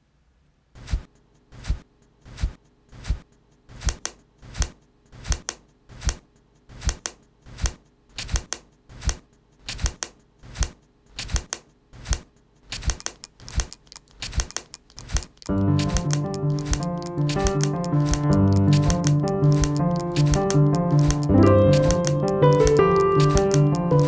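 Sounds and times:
perfume atomizer spraying: 12.7 - 24.0
plastic compact case clicking: 12.8 - 24.0
makeup brush swishing: 15.8 - 24.0.

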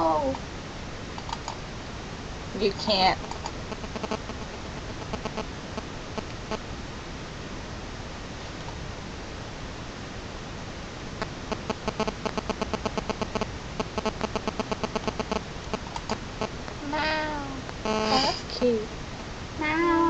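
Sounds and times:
buzzy interference beeps: 3.7 - 6.7, 11.5 - 17.2, 17.8 - 18.6
person imitating meows: 16.8 - 18.5, 19.6 - 20.0.

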